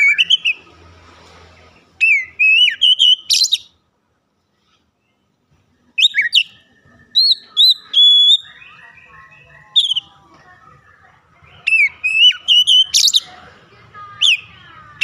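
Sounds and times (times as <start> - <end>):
bird whistling song: 0.0 - 0.7, 2.0 - 3.8, 5.9 - 10.2, 11.4 - 13.3, 14.2 - 14.5.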